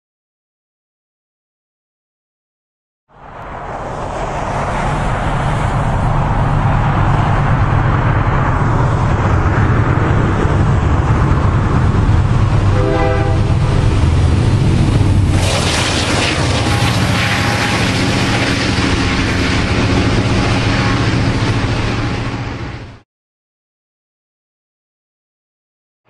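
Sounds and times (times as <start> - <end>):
diesel locomotive engines rumbling: 3.1 - 23.0
locomotive passing close by: 3.1 - 23.0
train horn toot: 12.7 - 13.6, 16.5 - 18.6, 20.4 - 21.4.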